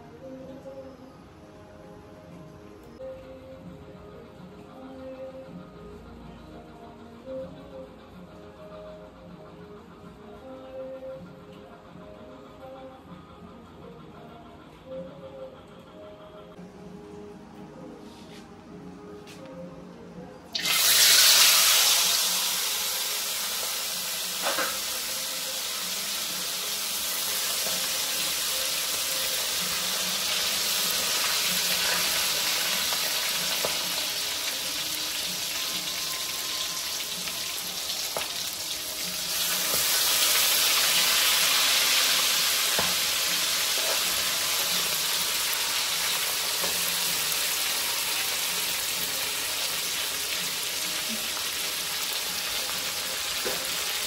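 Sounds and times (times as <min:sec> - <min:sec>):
food sizzling in hot oil: 0:20.5 - 0:54.0.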